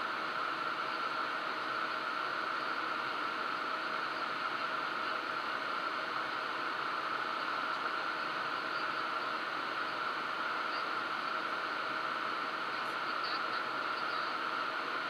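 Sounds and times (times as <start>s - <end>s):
faint steady hum: 0.0s - 15.0s
jet cockpit airflow and engine noise: 0.0s - 15.0s.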